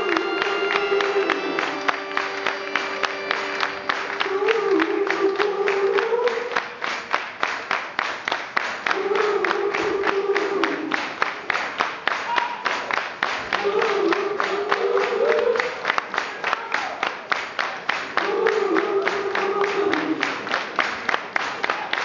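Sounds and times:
person singing melody: 0.0 - 6.6, 8.9 - 11.0, 18.2 - 20.4
crowd noise: 0.0 - 8.0, 8.8 - 22.0.

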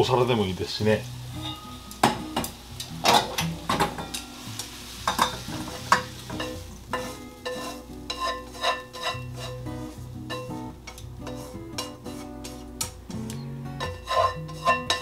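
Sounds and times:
vegetables sizzling: 0.0 - 15.0
chopsticks scraping frying pan: 3.0 - 12.9, 13.8 - 15.0.

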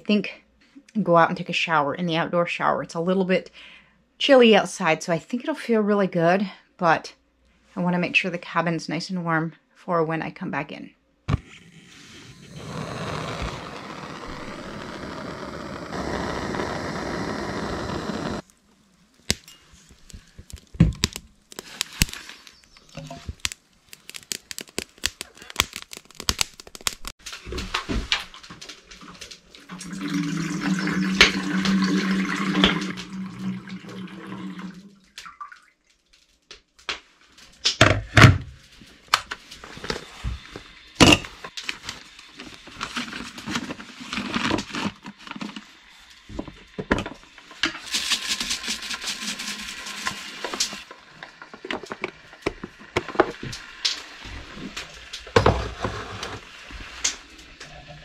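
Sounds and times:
butane torch hissing: 11.8 - 18.6.

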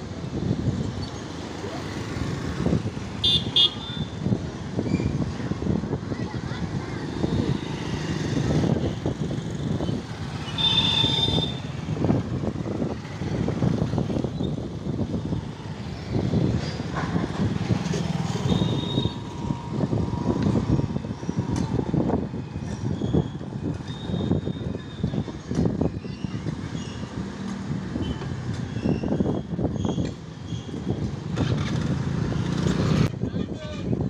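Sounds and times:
train wheels rumbling over rails: 14.7 - 18.4.

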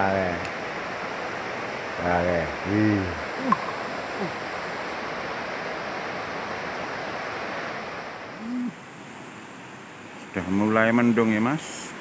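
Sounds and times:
river rushing over rocks: 0.0 - 10.4
person vocal sound: 3.4 - 4.4, 8.4 - 8.8.

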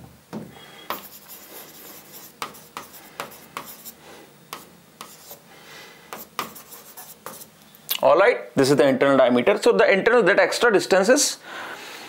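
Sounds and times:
pen tapping and scratching on screen: 0.9 - 5.4, 6.1 - 7.5.

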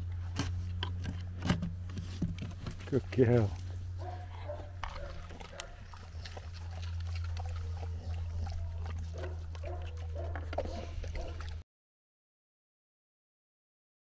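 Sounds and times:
steady low hum: 0.0 - 11.6
dog whining and grunting: 3.7 - 11.6.

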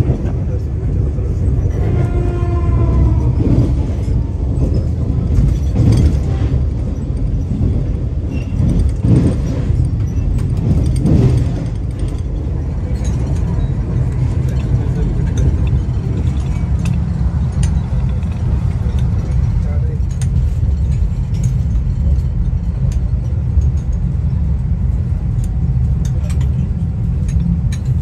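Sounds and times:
train wheels rumbling on track: 0.0 - 28.0.

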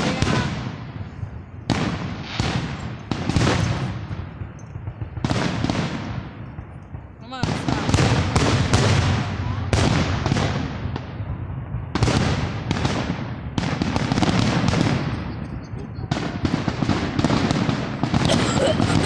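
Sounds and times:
firework shells bursting: 0.0 - 11.0.

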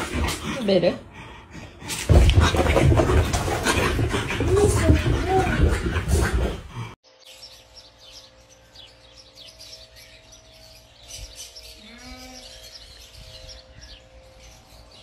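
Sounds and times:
small birds chirping: 7.0 - 15.0.

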